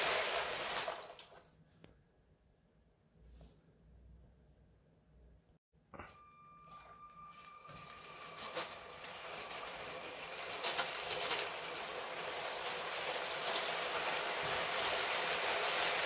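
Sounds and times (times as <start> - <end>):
toy train wheels rattling on track: 7.4 - 16.0.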